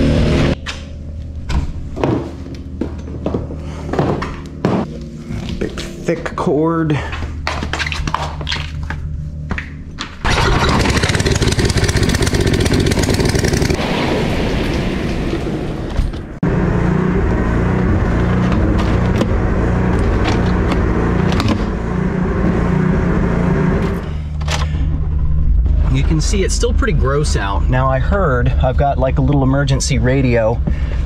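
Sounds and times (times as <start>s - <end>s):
generator engine running: 8.3s - 13.8s, 16.4s - 31.0s.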